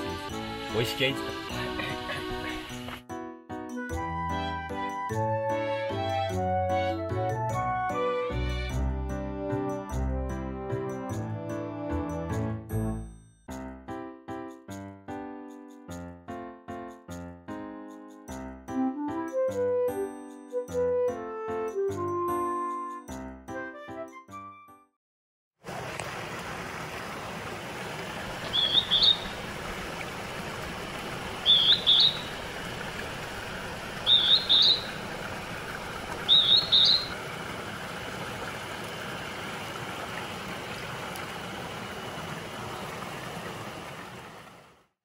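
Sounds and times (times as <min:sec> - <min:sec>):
mountain stream rushing: 0:25.6 - 0:44.8
cuckoo calling: 0:28.4 - 0:29.6, 0:31.4 - 0:32.4, 0:34.0 - 0:35.2, 0:36.1 - 0:37.2.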